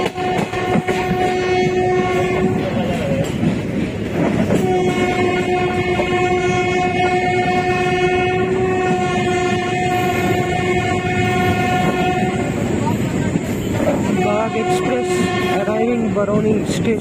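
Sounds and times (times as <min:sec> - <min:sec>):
train horn long blast: 0:00.0 - 0:03.0, 0:04.5 - 0:12.8, 0:13.8 - 0:16.1
train running on track: 0:00.0 - 0:17.0.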